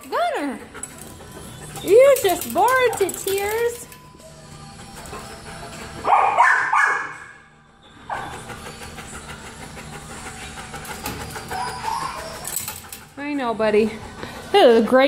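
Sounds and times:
dog barking: 0:06.0 - 0:07.4.

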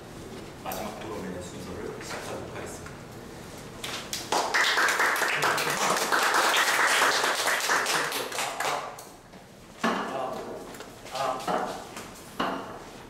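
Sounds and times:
audience applauding: 0:04.2 - 0:08.8.

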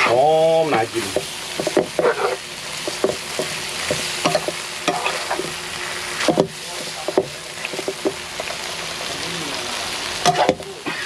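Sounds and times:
utensil scraping a pan: 0:00.0 - 0:05.6
stir-fry sizzling in a pan: 0:00.0 - 0:11.0.

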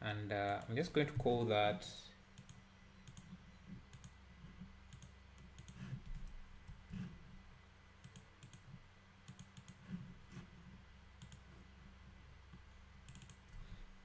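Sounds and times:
low steady hum: 0:00.0 - 0:14.0
mouse and keyboard clicks: 0:02.4 - 0:04.2, 0:04.9 - 0:06.8, 0:09.3 - 0:09.8, 0:11.2 - 0:11.4, 0:13.1 - 0:13.4.

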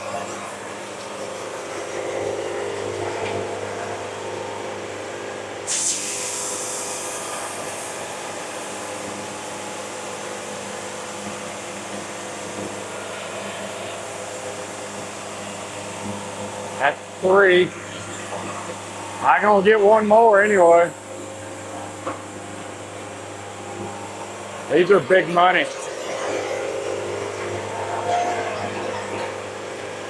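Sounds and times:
band sawmill motor drone: 0:00.0 - 0:30.0
saw blade high hiss: 0:05.7 - 0:07.4.

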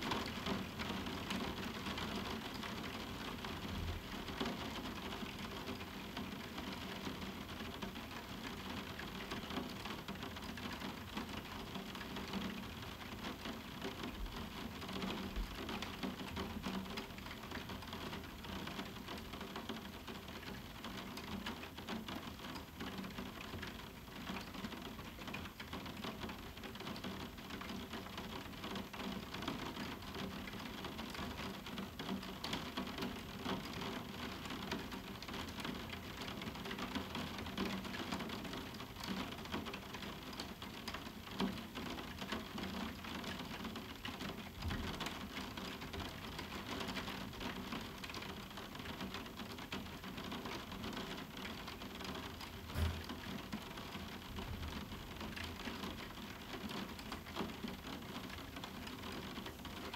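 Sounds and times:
rain on a roof window: 0:00.0 - 0:59.9.

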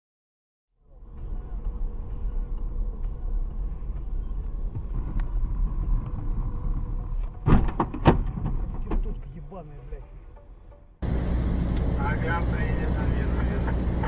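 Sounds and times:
road and engine rumble in car: 0:00.8 - 0:10.1, 0:11.0 - 0:14.0
loud car crashes: 0:07.4 - 0:09.1.

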